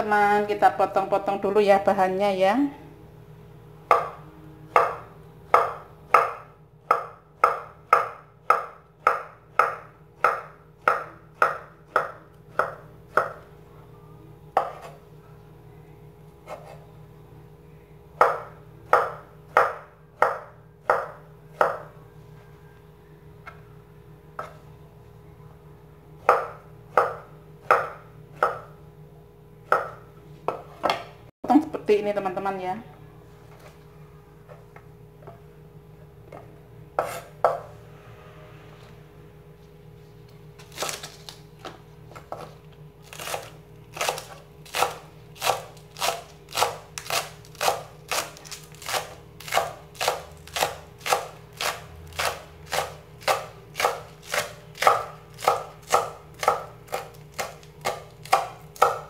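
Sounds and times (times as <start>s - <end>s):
faint steady hum: 0.0s - 59.0s
cleaver chopping on wooden board: 3.9s - 13.4s, 48.9s - 59.0s.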